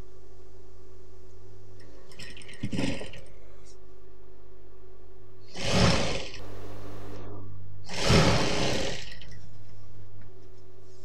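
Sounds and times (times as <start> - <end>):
sewing machine stitching: 5.5 - 6.4, 7.9 - 9.4
sewing machine motor humming: 5.5 - 7.2, 7.9 - 9.4.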